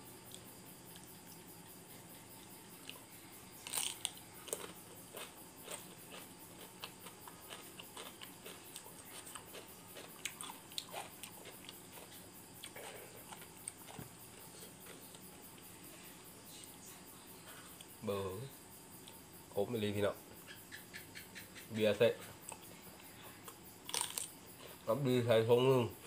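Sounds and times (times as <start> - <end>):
person chewing crisp food: 3.6 - 15.4, 23.4 - 24.8.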